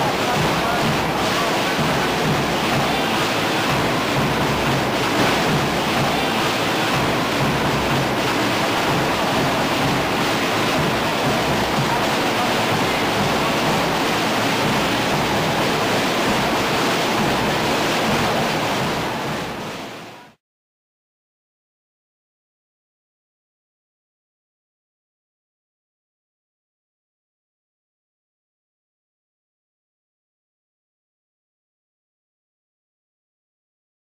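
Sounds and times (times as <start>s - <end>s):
protest crowd din: 0.0s - 20.4s.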